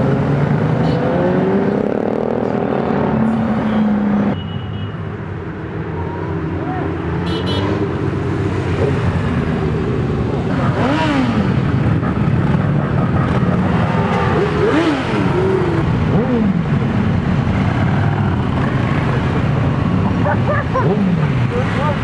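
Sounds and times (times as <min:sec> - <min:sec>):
motorcycles riding past: 0:05.9 - 0:22.0
motorcycle engine revving: 0:07.5 - 0:22.0.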